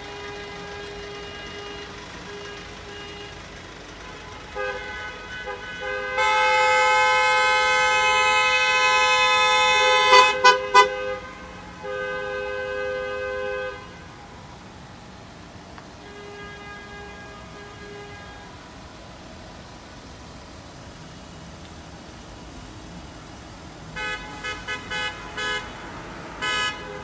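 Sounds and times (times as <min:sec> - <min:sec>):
vehicle horns honking: 0:00.0 - 0:14.3, 0:15.9 - 0:18.9, 0:23.9 - 0:27.0
faint engine and tyre noise: 0:00.0 - 0:27.0.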